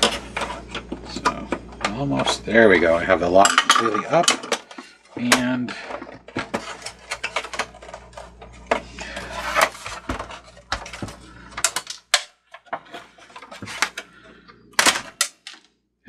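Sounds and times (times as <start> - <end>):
plastic panels clicking and knocking: 0.0 - 14.1, 14.8 - 15.7
rustling scrape: 6.4 - 11.5, 12.8 - 14.2.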